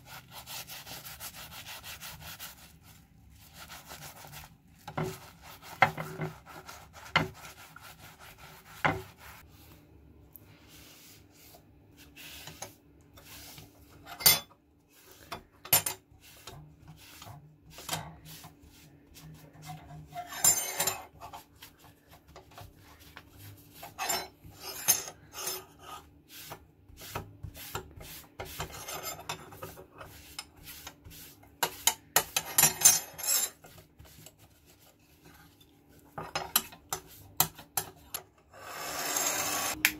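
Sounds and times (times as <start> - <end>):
steel wool scratching metal: 12.2 - 21.4, 23.4 - 33.8, 38.5 - 39.8.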